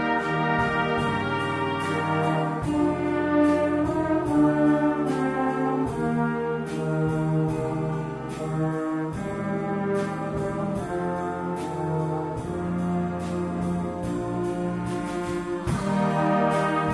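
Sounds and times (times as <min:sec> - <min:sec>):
brass band playing slow chords: 0:00.0 - 0:16.9.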